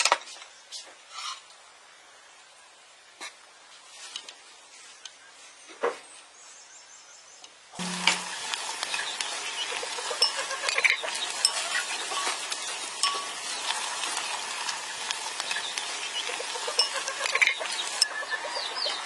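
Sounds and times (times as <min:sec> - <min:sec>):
wooden utensil scraping pot: 0:07.8 - 0:18.2
liquid sizzling and bubbling: 0:07.8 - 0:19.0.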